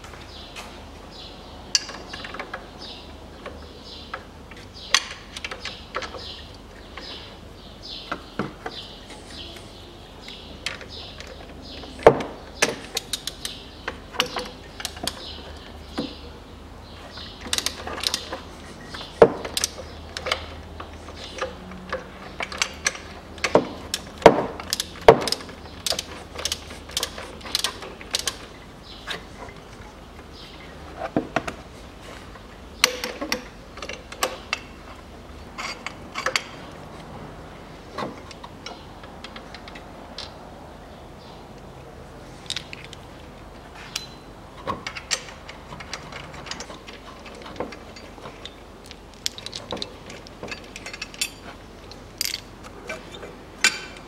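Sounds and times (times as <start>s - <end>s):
hand ratchet clicking: 21.2s - 28.6s
metal tools clinking: 35.5s - 36.7s, 44.8s - 54.0s.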